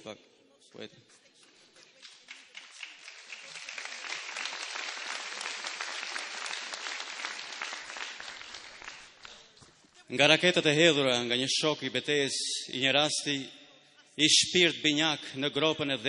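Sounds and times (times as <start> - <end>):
audience applause: 2.0 - 9.4.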